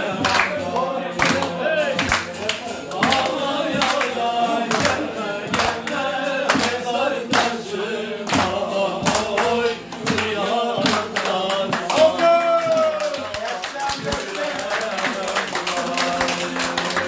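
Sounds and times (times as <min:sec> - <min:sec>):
man singing a slow song: 0:00.0 - 0:12.9
plucked lute: 0:00.0 - 0:13.3
men clapping in time: 0:00.1 - 0:07.7, 0:08.3 - 0:17.0.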